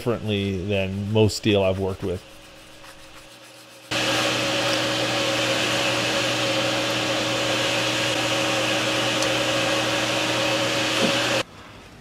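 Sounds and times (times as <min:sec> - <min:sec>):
small electric motor whirring: 0:07.8 - 0:11.4.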